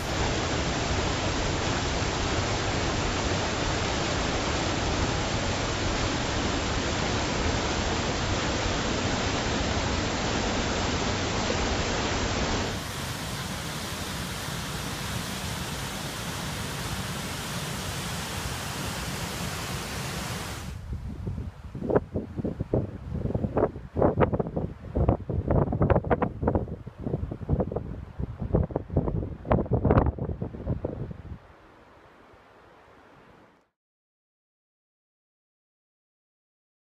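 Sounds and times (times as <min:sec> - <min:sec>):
creek water rushing over boulders: 0:00.0 - 0:20.8
waterfall pouring into gorge: 0:00.0 - 0:20.8.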